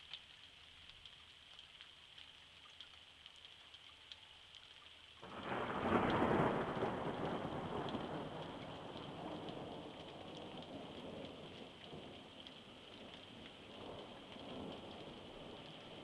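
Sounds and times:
light rain pattering on pavement: 0.0s - 16.0s
thunder rumbling: 5.2s - 16.0s.

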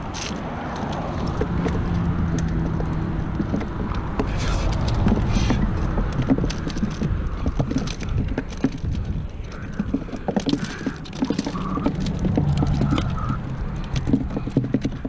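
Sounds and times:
rustling: 0.0s - 15.0s
hands scraping gravel: 3.6s - 15.0s.

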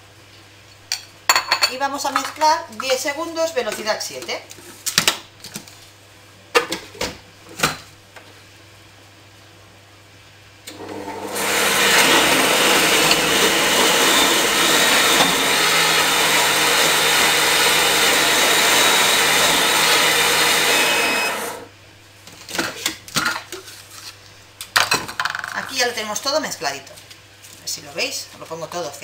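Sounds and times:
kitchen robot motor mixing: 10.7s - 21.7s.

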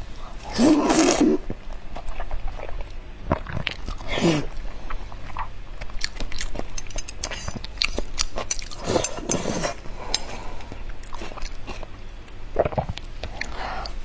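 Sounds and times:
wet chewing and lip smacks: 1.9s - 9.2s.

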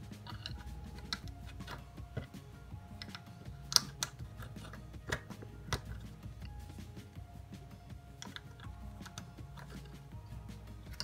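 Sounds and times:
plastic bricks clicking together: 0.2s - 2.3s, 2.9s - 6.2s, 8.2s - 10.0s.

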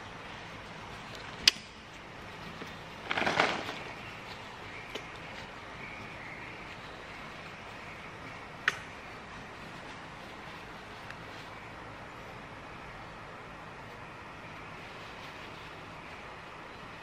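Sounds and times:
cloth towel rustling: 2.4s - 4.4s.

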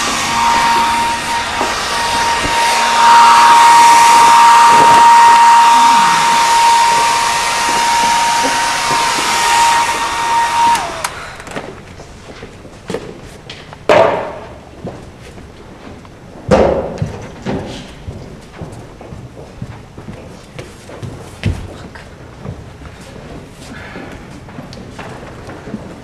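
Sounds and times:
rush of air: 0.0s - 11.8s
electric fan motor whine: 0.0s - 16.4s.

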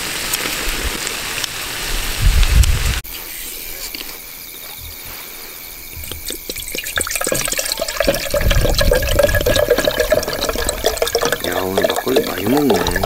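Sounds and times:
running water splashing: 4.8s - 13.0s
dripping clicks: 5.9s - 13.0s.

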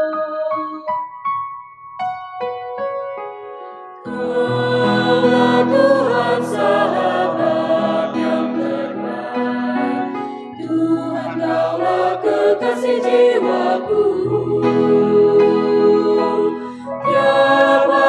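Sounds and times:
sustained keyboard chords: 4.0s - 18.0s
choir singing a hymn: 4.1s - 18.0s.

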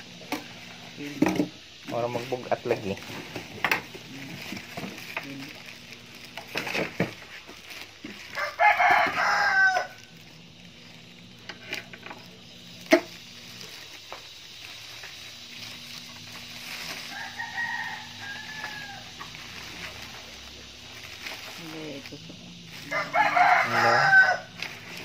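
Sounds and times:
plastic wrap handling: 0.5s - 25.0s
rooster crowing: 8.2s - 10.2s, 16.8s - 20.2s, 22.8s - 24.9s.

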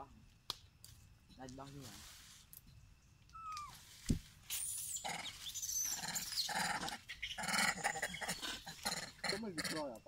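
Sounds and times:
macaques squealing and grunting: 3.4s - 3.8s, 4.7s - 9.9s.

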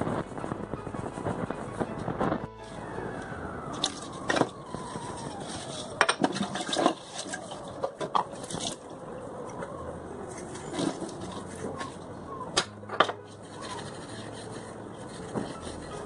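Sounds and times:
faint falling tone: 0.0s - 6.2s
sponge scrubbing: 13.4s - 16.0s.

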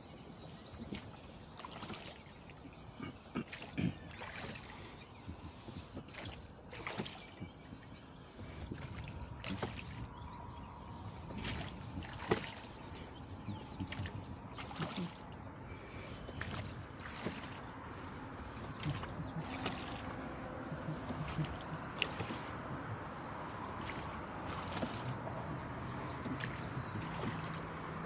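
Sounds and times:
water gurgling along hull: 0.0s - 28.0s
oar blades splashing: 0.8s - 10.2s, 10.8s - 28.0s
oars knocking in oarlocks: 8.4s - 10.1s, 11.3s - 15.4s, 16.3s - 23.2s, 23.8s - 28.0s.

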